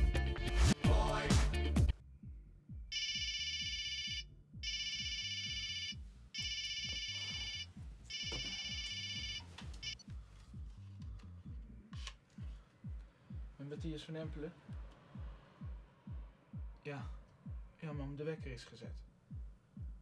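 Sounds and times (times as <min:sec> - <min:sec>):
music: 0:00.0 - 0:20.0
telephone ringing: 0:02.9 - 0:10.0.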